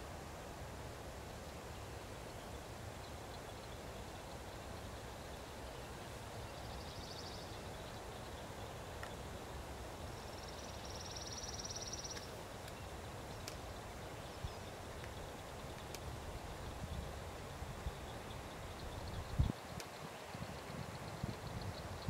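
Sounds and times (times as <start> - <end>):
faint clicks: 12.0 - 13.8, 15.0 - 16.1.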